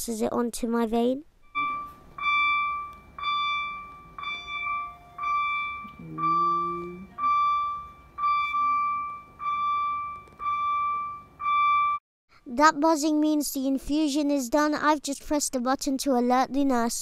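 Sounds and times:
infusion pump alarm beeping: 1.5s - 12.0s.

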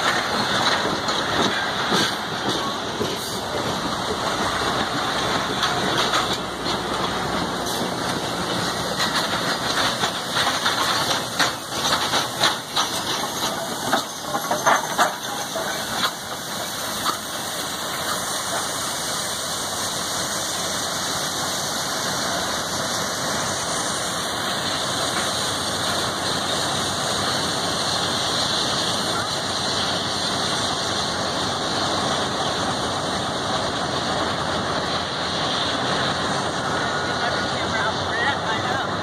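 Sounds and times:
train wheels clattering and squealing: 0.0s - 19.6s
steam locomotive hissing: 0.0s - 39.0s.

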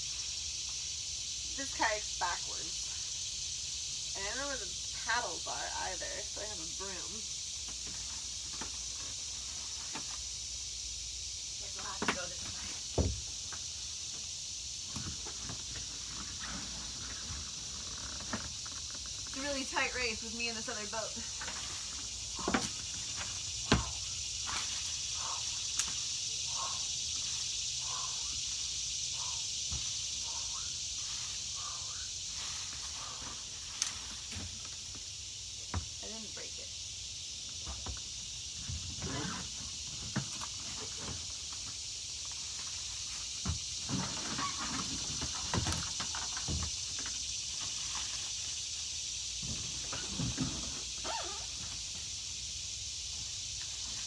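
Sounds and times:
insects chirping: 0.0s - 54.0s
steady high hiss: 0.0s - 54.0s.

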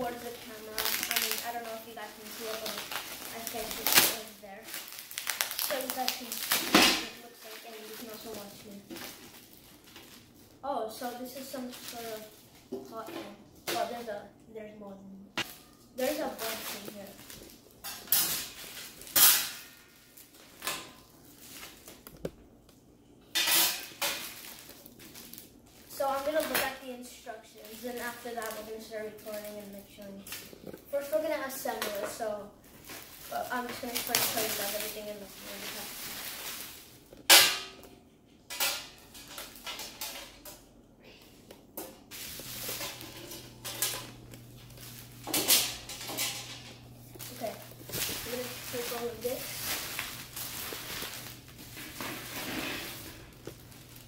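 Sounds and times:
plastic wrap crinkling: 0.0s - 13.1s, 15.4s - 22.6s, 23.7s - 37.3s, 42.1s - 54.0s
metal rack and trays clanking: 45.2s - 46.8s.

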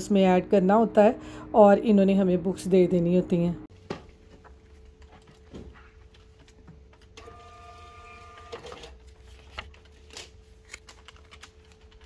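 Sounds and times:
receipt printer whirring: 7.0s - 9.2s.

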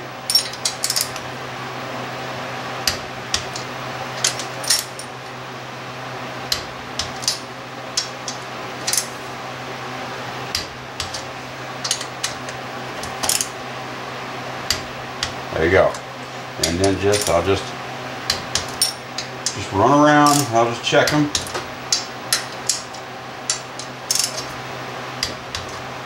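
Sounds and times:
steady low hum: 0.0s - 26.0s
torque wrench clicking: 11.8s - 13.5s, 20.3s - 20.5s, 21.1s - 24.5s.

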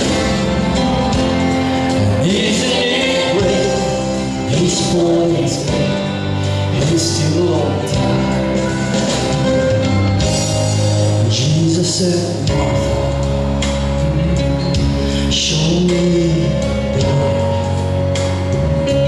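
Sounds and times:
instrumental accompaniment: 0.0s - 19.0s
man singing into a microphone: 2.0s - 8.8s, 11.0s - 19.0s.

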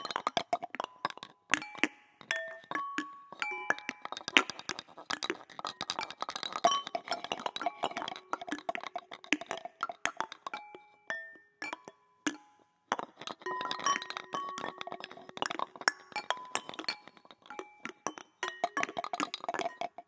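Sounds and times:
percussive taps and clinks: 0.0s - 20.0s.

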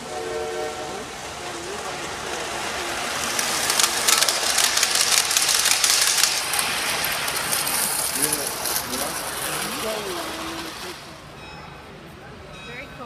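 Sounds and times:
model train passing: 0.0s - 13.0s
wheels clicking over track: 0.8s - 11.2s.

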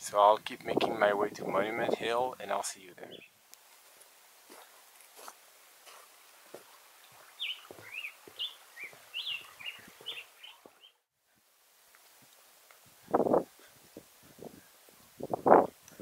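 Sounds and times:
bird chirping: 3.0s - 3.4s, 7.0s - 11.1s
footsteps on a trail: 3.6s - 10.9s.

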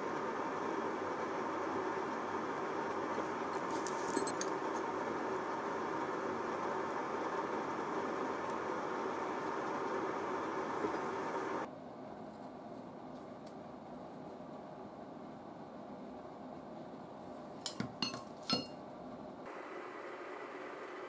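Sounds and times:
workshop room hiss: 0.0s - 11.7s
light metallic clinks: 3.9s - 4.6s.

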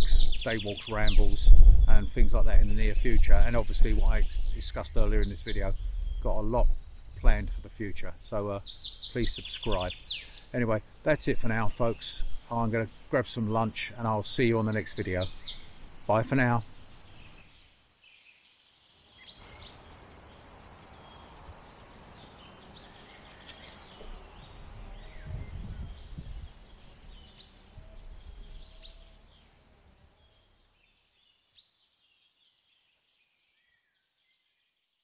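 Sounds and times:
small birds chirping: 0.0s - 35.0s
low rumble: 1.4s - 3.5s, 24.1s - 28.8s.

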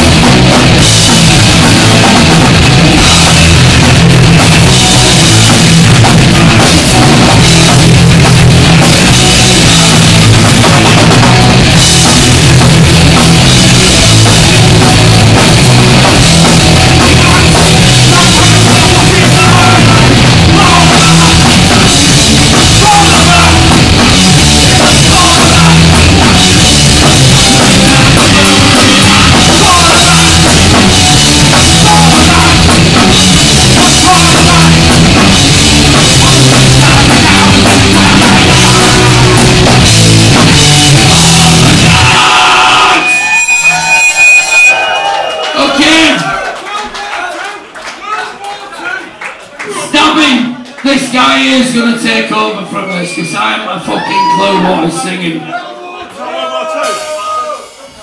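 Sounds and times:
punk band playing loud: 0.0s - 46.2s
person singing: 16.8s - 33.0s, 33.6s - 39.9s.

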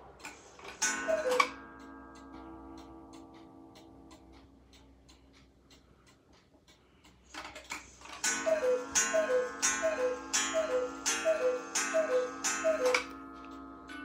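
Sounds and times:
clock mechanism whirring: 0.0s - 14.0s
clock ticking: 0.0s - 14.0s
cuckoo calls: 0.8s - 1.6s, 8.2s - 13.2s.

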